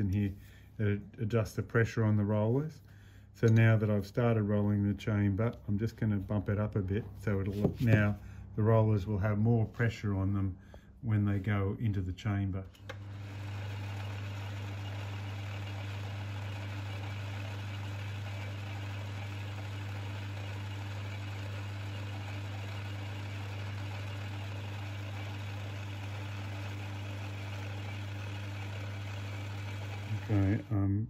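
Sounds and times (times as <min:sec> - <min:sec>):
metal lathe humming: 0:12.8 - 0:30.8.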